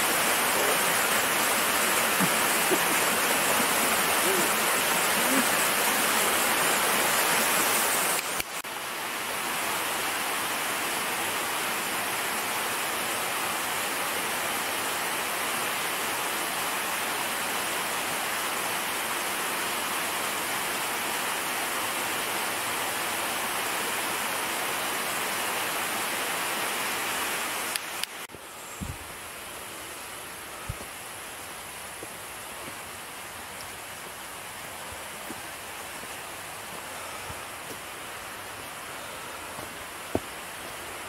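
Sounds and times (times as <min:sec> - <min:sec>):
rushing water: 0:00.0 - 0:41.0.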